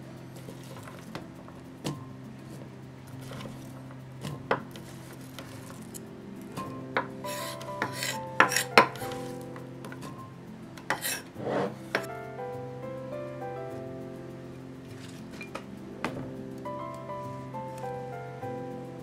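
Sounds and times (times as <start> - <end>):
knife scraping board: 10.9 - 12.1.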